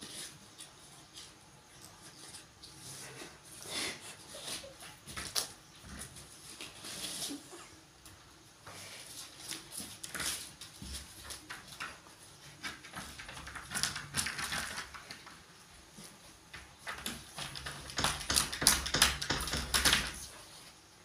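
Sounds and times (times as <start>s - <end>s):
puppy scratching at wooden door: 10.1s - 15.5s, 16.6s - 20.4s.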